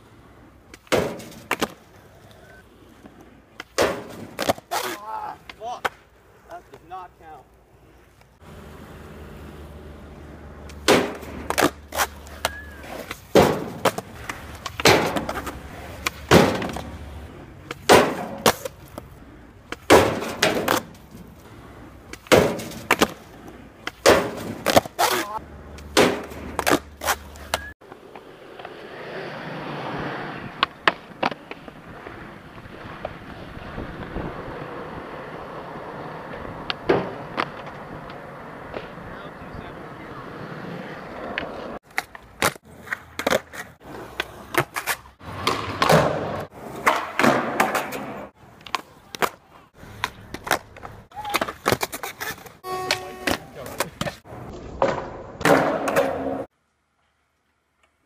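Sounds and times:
skateboard wheels rolling on asphalt: 0.0s - 58.0s
skateboard deck slapping and clattering: 0.7s - 1.8s, 3.6s - 6.0s, 10.6s - 17.0s, 17.6s - 19.1s, 19.7s - 21.2s, 22.1s - 28.7s, 36.6s - 39.0s, 41.2s - 52.6s, 53.3s - 56.5s.

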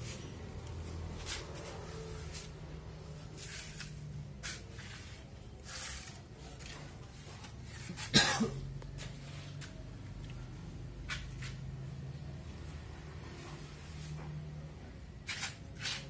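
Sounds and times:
person coughing: 8.0s - 8.7s.

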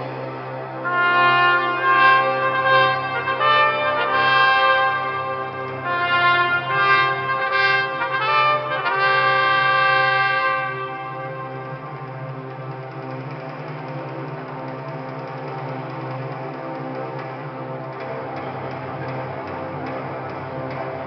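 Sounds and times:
trumpet fanfare: 0.8s - 12.2s.

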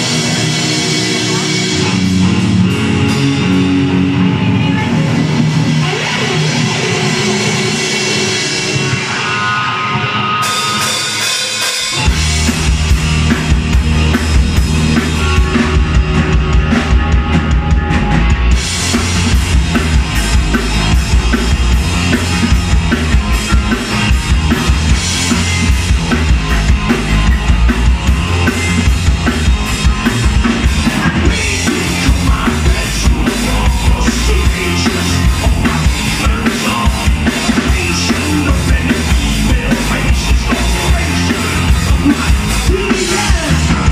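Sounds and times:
bass guitar: 0.0s - 43.9s
drum kit: 0.0s - 43.9s
electric guitar: 0.0s - 43.9s.

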